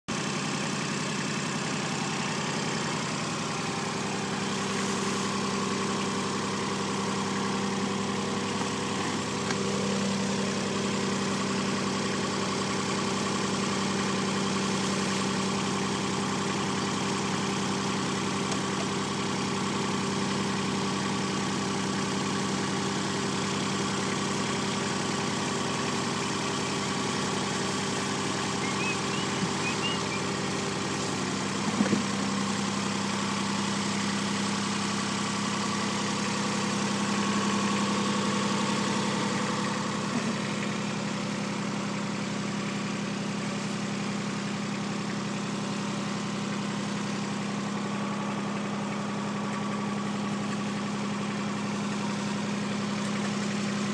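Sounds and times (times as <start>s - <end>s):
engine idling: 0.1s - 53.9s.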